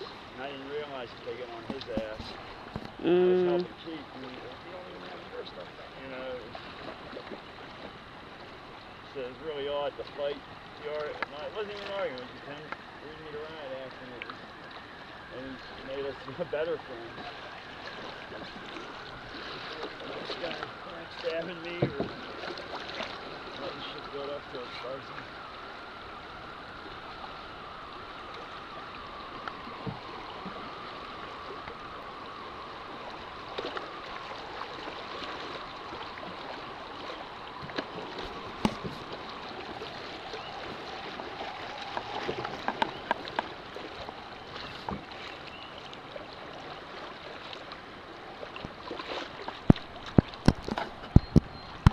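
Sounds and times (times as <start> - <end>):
river water rushing: 0.0 - 51.9
knocks on boat: 1.6 - 3.0, 21.8 - 22.2, 49.6 - 51.9.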